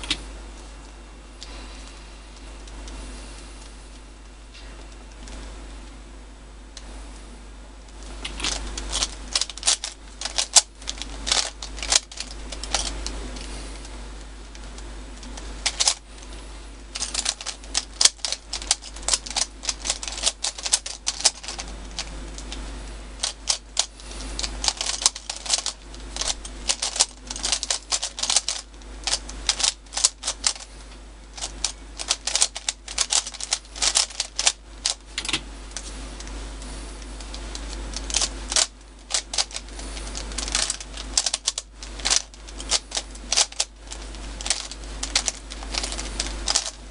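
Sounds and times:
puzzle cube plastic clicking: 7.9s - 13.2s, 14.5s - 16.3s, 17.0s - 22.6s, 23.2s - 30.7s, 31.3s - 36.4s, 37.2s - 46.8s.

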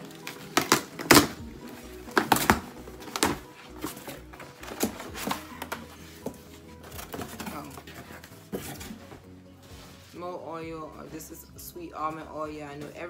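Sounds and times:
paper packaging rustling: 0.0s - 10.2s
faint background music: 0.0s - 13.0s.

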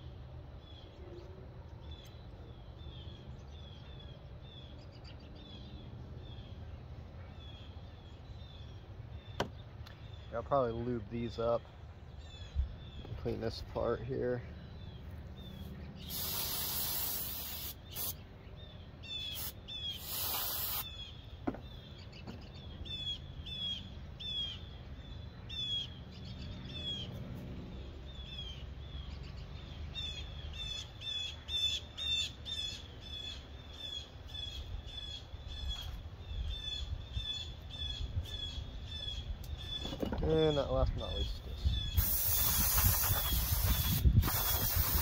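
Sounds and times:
low outdoor rumble: 0.0s - 16.7s, 20.8s - 44.8s
bird chirping: 0.0s - 45.0s
aerosol can spraying: 16.1s - 18.2s, 19.4s - 20.9s, 42.0s - 45.0s.

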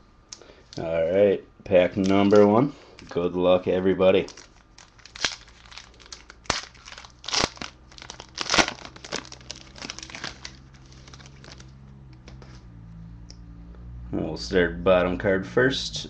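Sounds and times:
foil wrapper crinkling: 4.0s - 11.7s.

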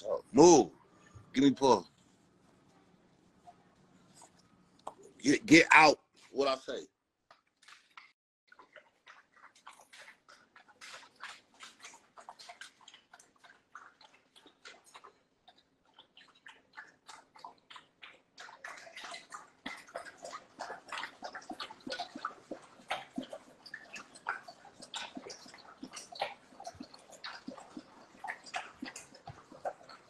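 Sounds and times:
dog lapping water: 7.6s - 30.0s.

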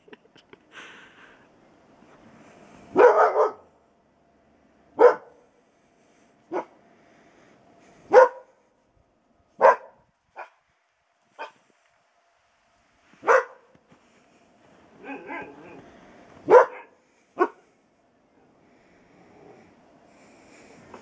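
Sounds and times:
dog barking: 2.9s - 3.7s, 5.0s - 5.4s, 6.5s - 6.8s, 8.1s - 8.6s, 9.6s - 10.6s, 11.4s - 11.6s, 13.2s - 13.7s, 15.0s - 15.8s, 16.5s - 17.6s.

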